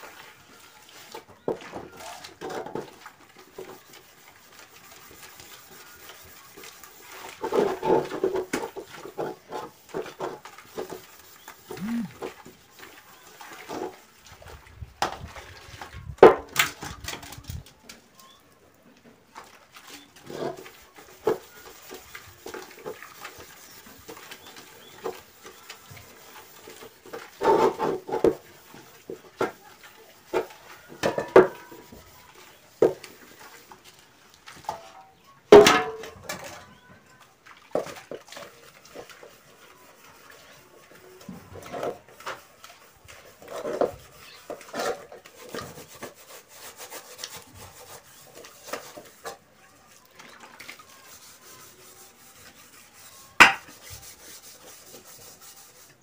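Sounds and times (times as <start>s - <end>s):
steel wool scrubbing pots: 0.0s - 18.5s, 19.2s - 56.0s
pots knocking and clanking: 31.0s - 31.7s, 35.5s - 36.4s, 53.4s - 53.7s.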